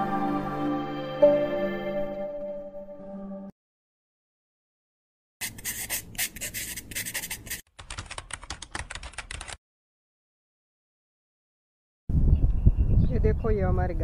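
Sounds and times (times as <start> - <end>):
pen scratching on paper: 5.4 - 8.9
keyboard typing clicks: 7.8 - 9.6.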